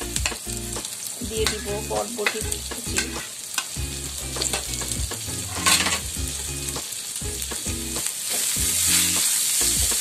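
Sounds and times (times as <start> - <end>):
vegetables sizzling in hot oil: 0.0 - 10.0
spoon scraping and tapping pan: 1.4 - 3.8, 4.4 - 4.8, 5.5 - 6.1.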